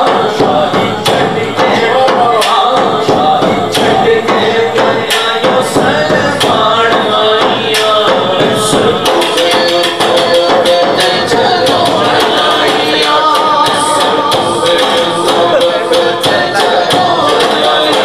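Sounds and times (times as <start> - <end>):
frame drum: 0.0 - 18.0
man singing into a microphone: 0.0 - 18.0.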